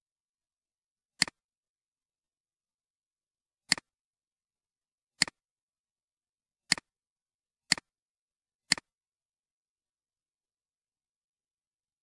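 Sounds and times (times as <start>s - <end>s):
computer mouse clicking: 1.2s - 1.4s, 3.7s - 3.9s, 6.7s - 6.9s, 7.7s - 7.9s, 8.7s - 8.9s.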